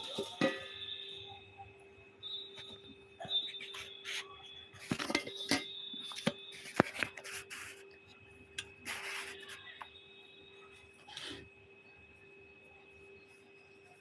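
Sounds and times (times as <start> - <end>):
steel bowl clinking on burner grate: 0.0 - 1.0, 4.9 - 6.4
faint steady hum: 0.0 - 14.0.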